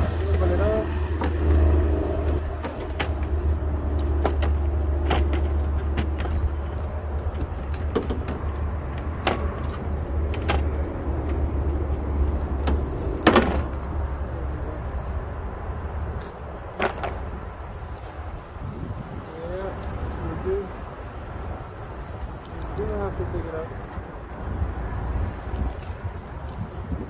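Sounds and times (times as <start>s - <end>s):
steady low rumble: 0.0s - 27.0s.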